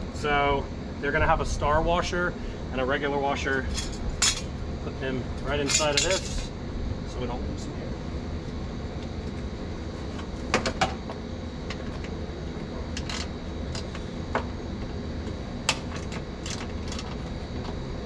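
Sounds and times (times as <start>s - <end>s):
metal tools and bolts clinking: 3.6s - 4.5s, 5.5s - 6.5s.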